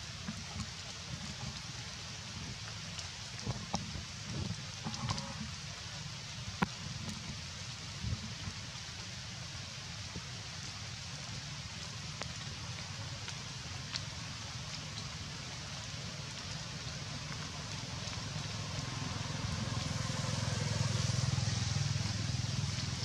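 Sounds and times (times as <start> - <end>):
faint clicks: 2.6 - 5.6.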